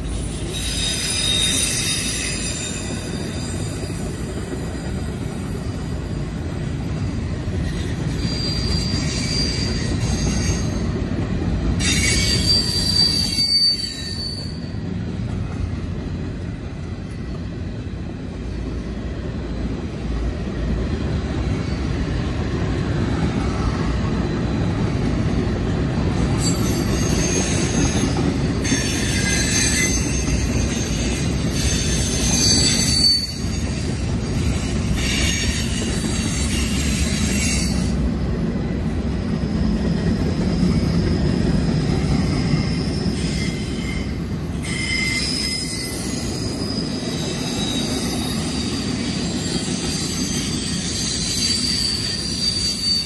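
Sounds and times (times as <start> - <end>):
train wheels rumbling on rail: 0.0 - 53.0
high-pitched wheel squeal: 0.2 - 4.1, 7.6 - 10.9, 11.8 - 14.8, 26.3 - 33.8, 42.1 - 53.0.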